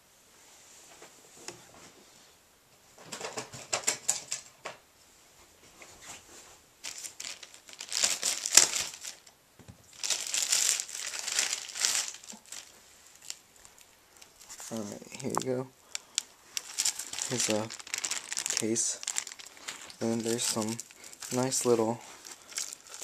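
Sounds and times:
plastic bag crinkling: 0:06.8 - 0:09.3, 0:09.9 - 0:23.0.

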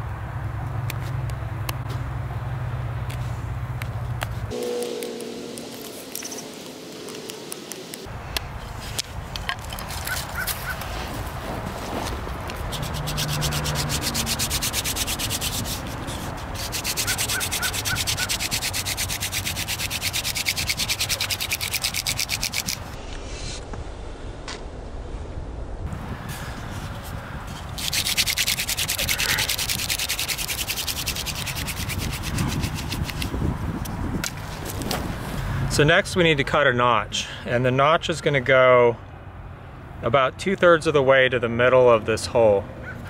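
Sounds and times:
stone scraping wood: 0:12.0 - 0:22.8, 0:27.8 - 0:33.2
hand drill rasping on wood: 0:12.5 - 0:22.8, 0:27.8 - 0:33.3.

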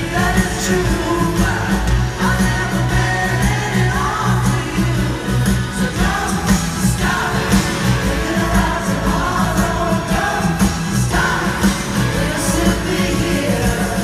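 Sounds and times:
live rock band playing: 0:00.0 - 0:14.0.

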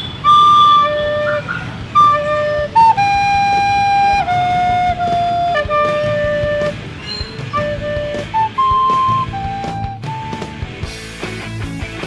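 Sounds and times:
recorder playing slow tune: 0:00.2 - 0:01.4, 0:07.5 - 0:10.6.

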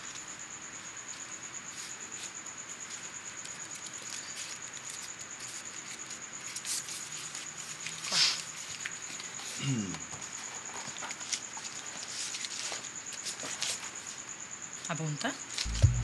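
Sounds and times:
cricket trilling: 0:00.0 - 0:16.0.

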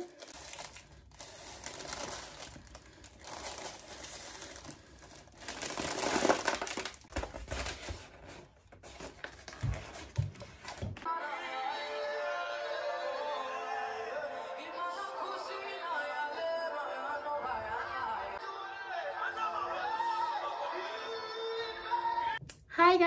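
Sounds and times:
crinkling handling noise: 0:00.0 - 0:11.1.

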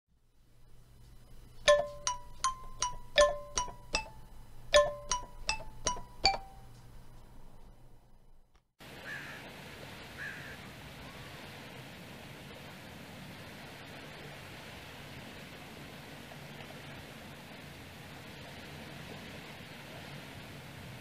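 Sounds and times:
bell-like chime jingle: 0:01.7 - 0:04.2, 0:04.8 - 0:06.6.

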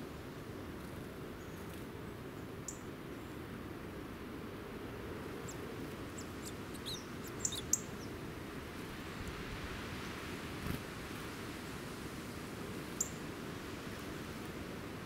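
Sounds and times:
low background noise: 0:00.0 - 0:15.0
songbirds chirping: 0:05.4 - 0:08.2.

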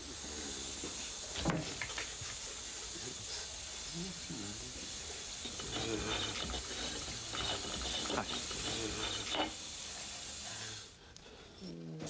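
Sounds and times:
tap water running into sink: 0:05.4 - 0:10.4.

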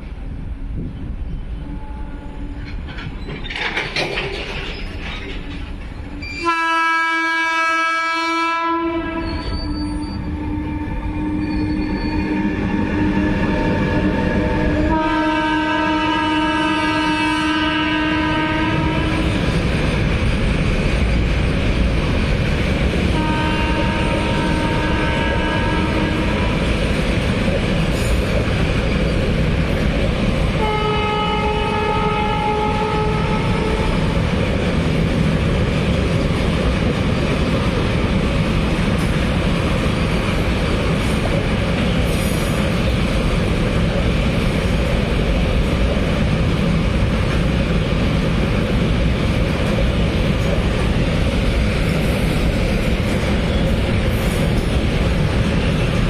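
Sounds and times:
freight train wheels rumbling: 0:00.0 - 0:56.0
train horn blasts: 0:01.6 - 0:02.6, 0:06.1 - 0:19.4, 0:23.1 - 0:26.6, 0:30.6 - 0:34.1.

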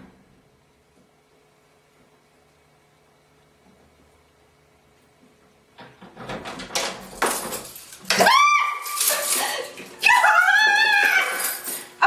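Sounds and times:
door unlatching and opening: 0:05.8 - 0:08.2
woman screaming: 0:08.1 - 0:11.7.

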